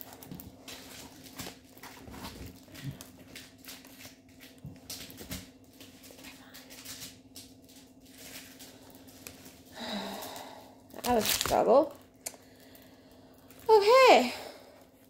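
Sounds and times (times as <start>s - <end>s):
clicks and rustles of handling: 0.0s - 9.7s
steady low hum: 0.0s - 15.0s.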